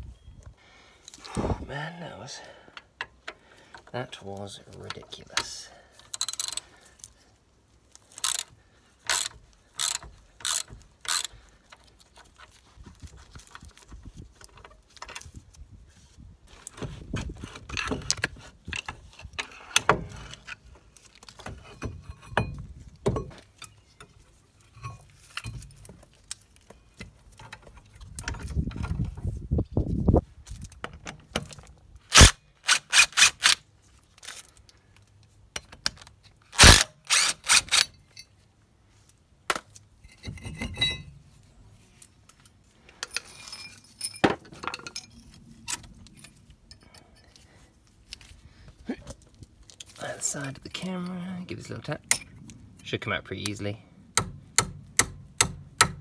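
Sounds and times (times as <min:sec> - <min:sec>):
metal clunks and scraping: 0:16.5 - 0:29.3, 0:40.0 - 0:41.5, 0:42.3 - 0:47.4.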